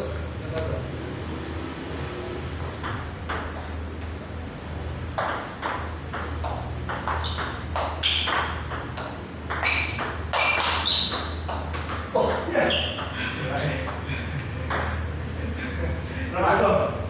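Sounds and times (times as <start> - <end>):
steady low hum: 0.0 - 17.0
table tennis ball knocking: 2.6 - 3.8, 5.2 - 14.0, 14.6 - 15.1.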